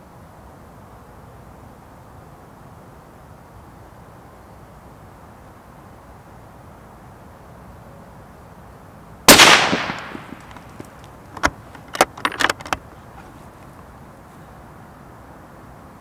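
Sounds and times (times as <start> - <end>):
rifle shot: 9.3 - 10.6
rifle bolt metallic clicks: 9.3 - 12.8.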